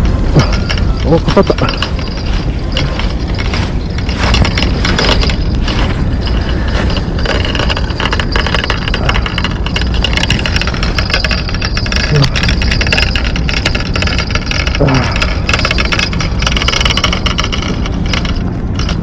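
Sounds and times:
loud rushing rumble: 0:00.0 - 0:16.4
fishing reel ticking: 0:00.0 - 0:19.0.

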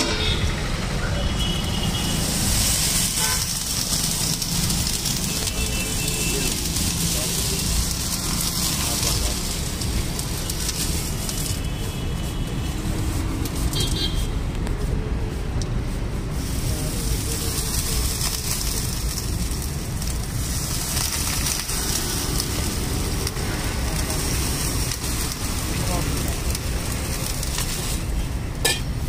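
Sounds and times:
traffic noise: 0:00.0 - 0:29.0
faint voices: 0:03.0 - 0:13.2, 0:21.1 - 0:28.2.

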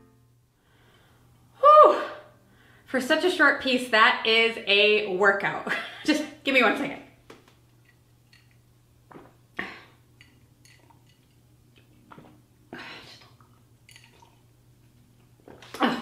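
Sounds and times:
low room hum: 0:00.0 - 0:16.0
woman breathing: 0:00.6 - 0:01.5, 0:02.4 - 0:02.9
woman swallowing: 0:09.1 - 0:10.1, 0:11.8 - 0:14.5.

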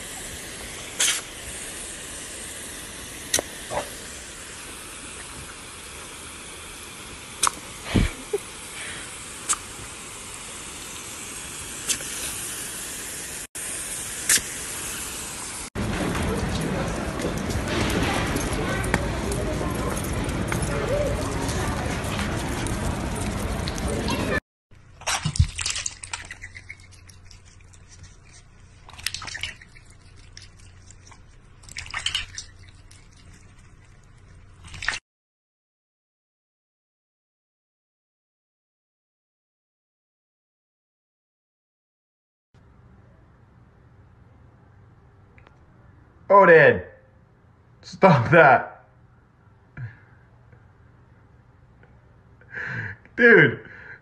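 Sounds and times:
hose nozzle spraying water: 0:00.0 - 0:15.7, 0:24.9 - 0:35.0
water splashing in a metal bowl: 0:24.9 - 0:35.0.

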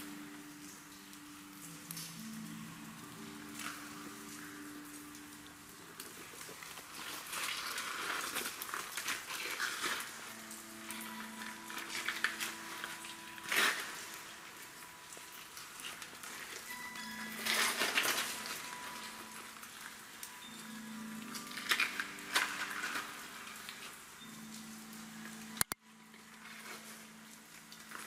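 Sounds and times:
soft held musical tones: 0:00.0 - 0:28.0.

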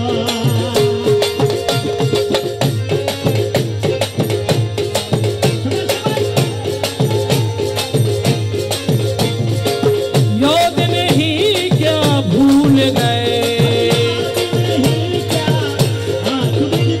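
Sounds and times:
hand drum fast rhythm: 0:00.0 - 0:17.0.

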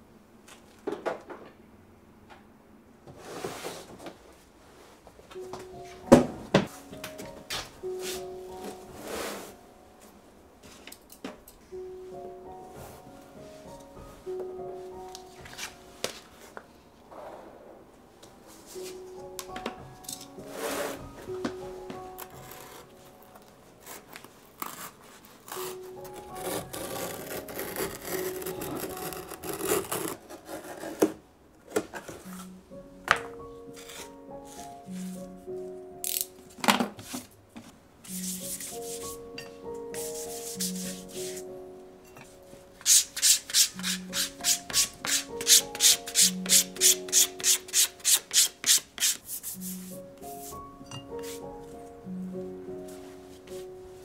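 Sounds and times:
quiet background music: 0:00.0 - 0:54.0
abrasive rubbing shoe leather: 0:40.0 - 0:41.4
tool scraping a shoe: 0:42.8 - 0:49.6.

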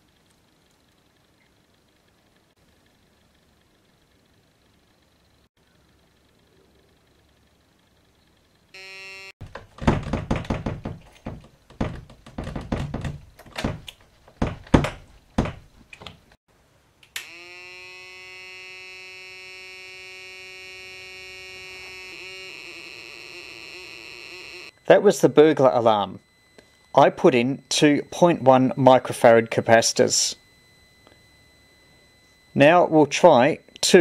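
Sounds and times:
electronic buzzer through speaker: 0:08.8 - 0:09.4, 0:17.2 - 0:34.0
irregular knocks and clicks: 0:09.4 - 0:16.3.

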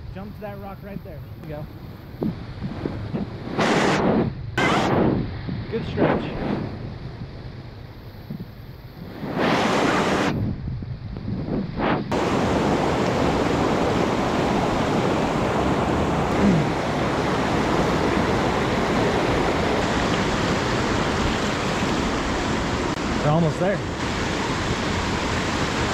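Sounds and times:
mountain creek rushing water: 0:12.1 - 0:25.9.

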